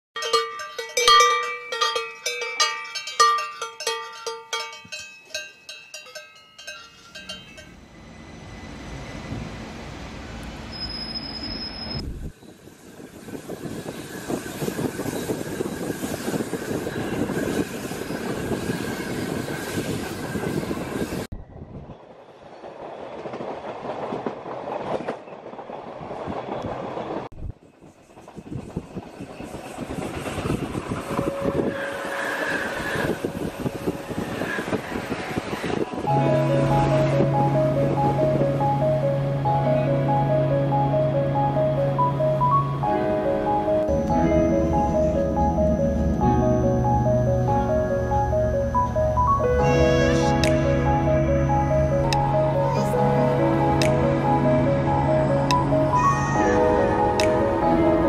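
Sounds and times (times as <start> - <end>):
ringing bell-like tones: 0.2 - 8.4
train wheel and rail noise: 0.2 - 58.0
high wheel squeal: 6.9 - 21.3, 27.8 - 36.0, 49.4 - 50.5, 55.8 - 57.0.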